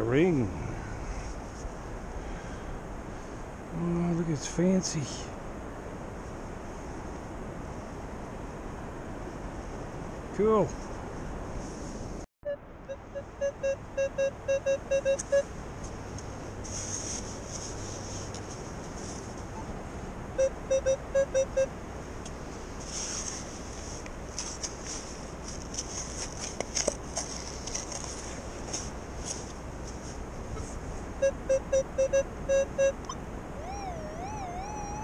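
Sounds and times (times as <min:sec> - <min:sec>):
metal detector beeping: 0:12.4 - 0:15.5, 0:20.4 - 0:21.7, 0:30.6 - 0:35.0.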